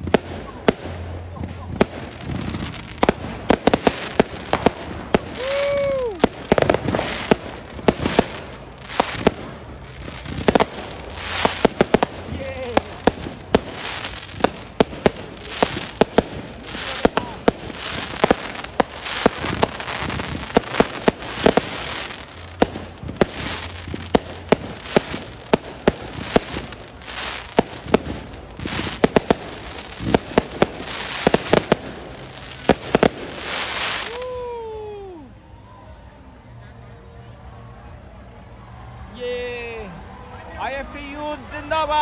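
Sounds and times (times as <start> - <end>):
fireworks bangs and crackling: 0.0 - 35.2
person whooping: 5.3 - 6.4, 34.0 - 35.4.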